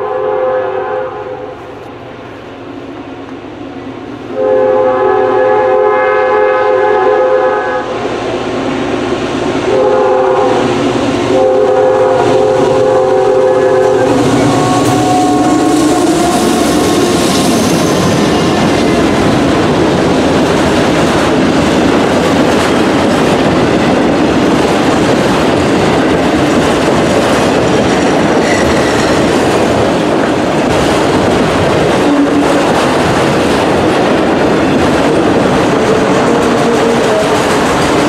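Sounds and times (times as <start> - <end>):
train horn: 0.0 - 1.6, 4.3 - 8.1, 9.6 - 18.1, 32.0 - 32.7, 35.9 - 37.6
train wheels rumbling on rails: 0.0 - 38.0.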